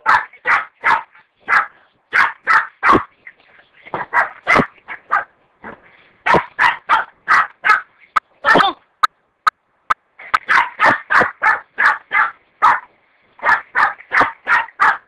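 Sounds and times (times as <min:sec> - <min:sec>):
dog barking: 0:00.0 - 0:03.1, 0:04.0 - 0:05.4, 0:06.2 - 0:07.9, 0:10.4 - 0:15.0.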